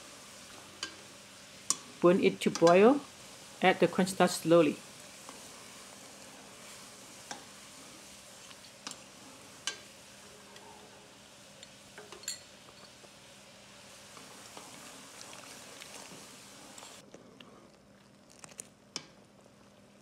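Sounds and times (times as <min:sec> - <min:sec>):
broth boiling in a pan: 0:00.0 - 0:20.0
metal ladle clinking: 0:12.0 - 0:12.9.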